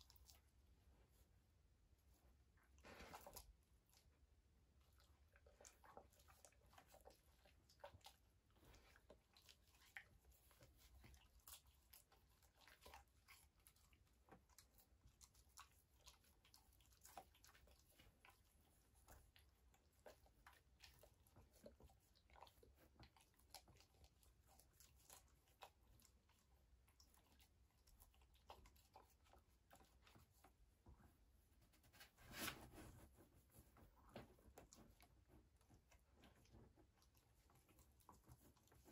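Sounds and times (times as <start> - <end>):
dogs chewing meat: 4.9 - 30.6.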